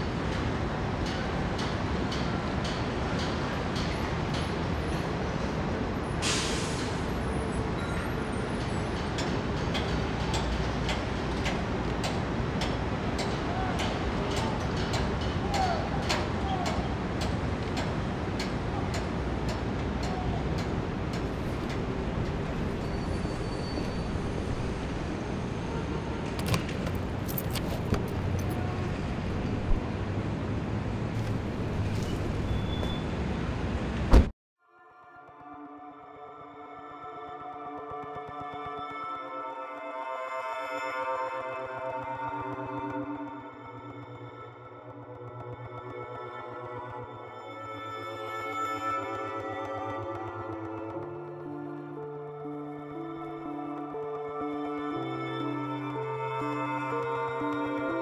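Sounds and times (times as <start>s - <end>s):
city traffic rumble: 0.0s - 34.4s.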